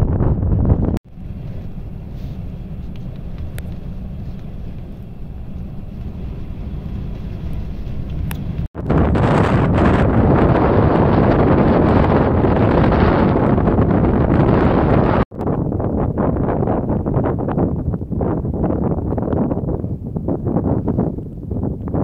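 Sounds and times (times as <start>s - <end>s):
wind noise on microphone: 0.0s - 22.0s.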